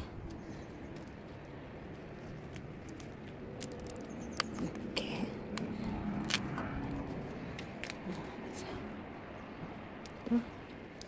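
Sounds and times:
gloved fingers clicking and rustling: 0:00.2 - 0:08.3.

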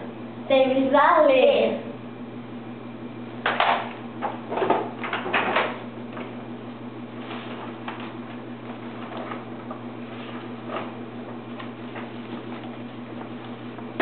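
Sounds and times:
steady low hum: 0:00.0 - 0:14.0
paper and cardboard rustling: 0:07.1 - 0:13.8.

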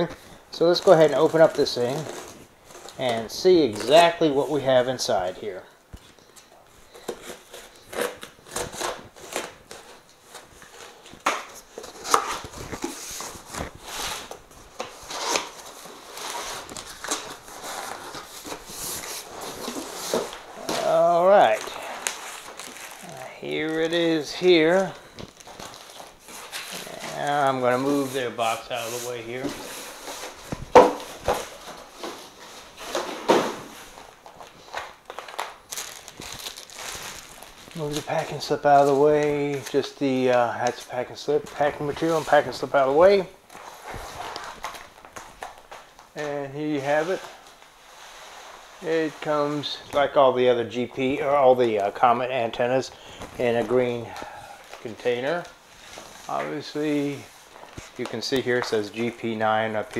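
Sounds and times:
packing material rustling: 0:00.0 - 0:59.9
cardboard and tape ripping: 0:07.0 - 0:39.9
sharp bumps on hard floor: 0:30.5 - 0:32.2.

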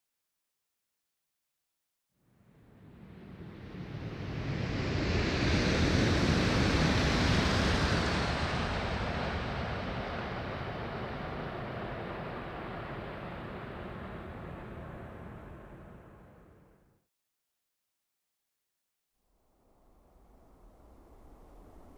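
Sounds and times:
train passing at high speed: 0:02.6 - 0:16.8.

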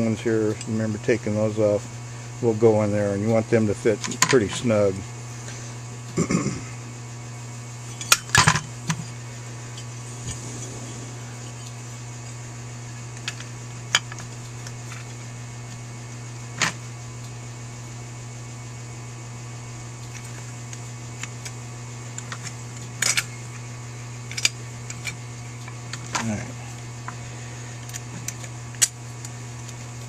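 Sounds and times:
steady low hum: 0:08.9 - 0:14.6.

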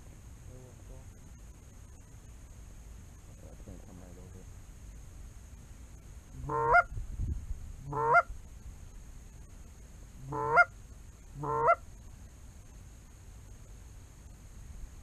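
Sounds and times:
goose honks: 0:06.4 - 0:06.9, 0:07.8 - 0:08.3, 0:10.2 - 0:10.7, 0:11.4 - 0:11.8.

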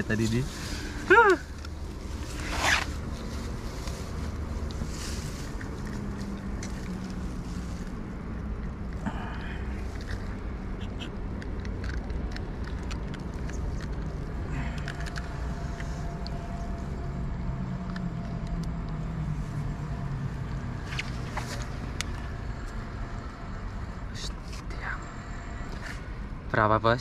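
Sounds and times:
grass rustling: 0:00.0 - 0:09.0.

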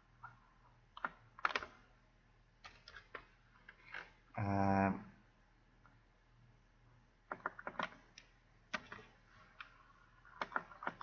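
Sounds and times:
computer keyboard and mouse clicks: 0:00.2 - 0:01.8, 0:02.6 - 0:04.1, 0:07.3 - 0:11.0.

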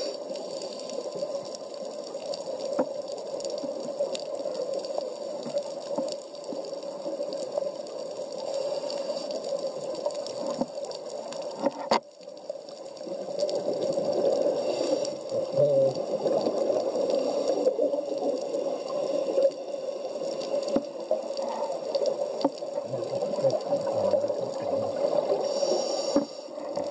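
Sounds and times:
underwater rushing bubbling water: 0:12.8 - 0:26.9.

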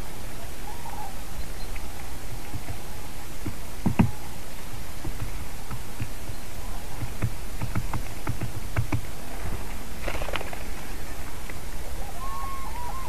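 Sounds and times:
wind rumble on microphone: 0:00.0 - 0:13.0
sharp taps: 0:03.4 - 0:04.2, 0:05.0 - 0:09.1.

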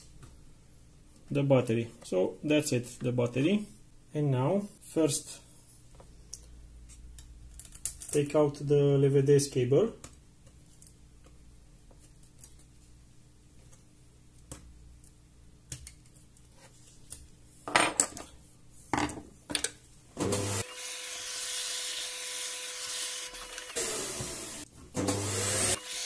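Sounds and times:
small electric motor whining: 0:20.4 - 0:26.0.

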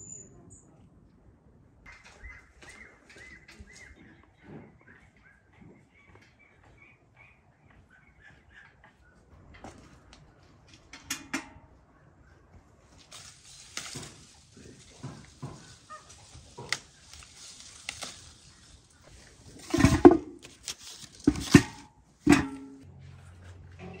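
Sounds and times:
leaves rustling: 0:12.8 - 0:21.8
stems snapping: 0:13.0 - 0:19.1
fruit thumping into metal bucket: 0:13.1 - 0:15.9, 0:19.5 - 0:22.8.

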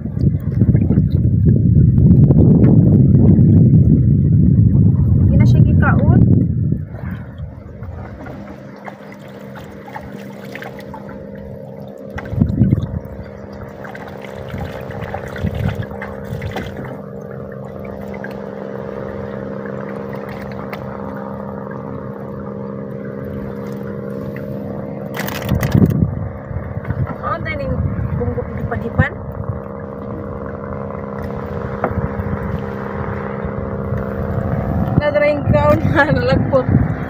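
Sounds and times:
bump in boat: 0:00.0 - 0:04.2, 0:04.8 - 0:37.0
boat engine droning: 0:00.0 - 0:37.0
water moving against hull: 0:00.0 - 0:37.0
net and fish clattering: 0:25.1 - 0:26.0.

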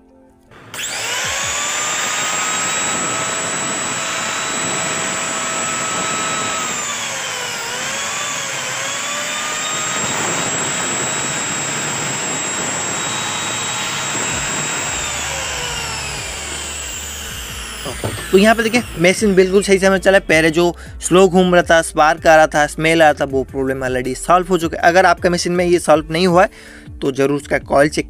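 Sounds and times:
electric motor whining: 0:00.5 - 0:20.3.

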